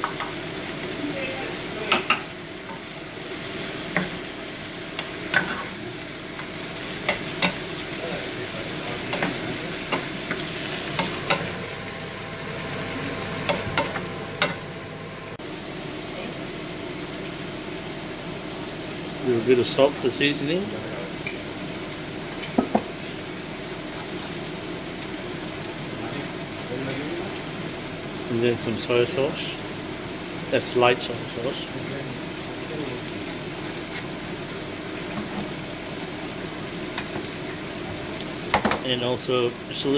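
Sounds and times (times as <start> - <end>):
food sizzling in a frying pan: 0.0 - 39.9
spatula knocking and scraping pan: 9.0 - 11.6.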